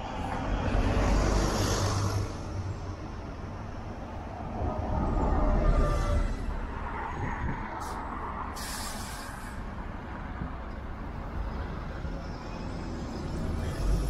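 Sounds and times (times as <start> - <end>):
city street traffic rumble: 0.0 - 14.0
air brake hisses: 7.8 - 9.7.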